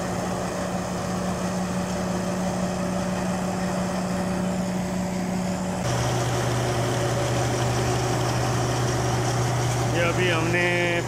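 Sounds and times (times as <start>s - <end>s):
thresher drum humming: 0.0s - 11.0s
tractor diesel engine running: 0.0s - 11.0s.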